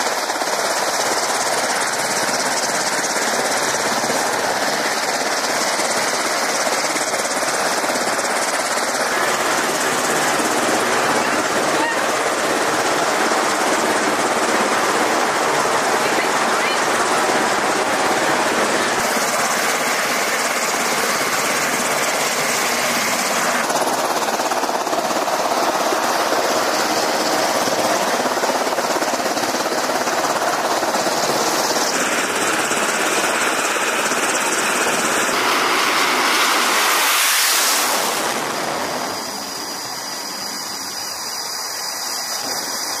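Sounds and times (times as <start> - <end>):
jet engines running: 0.0 - 43.0.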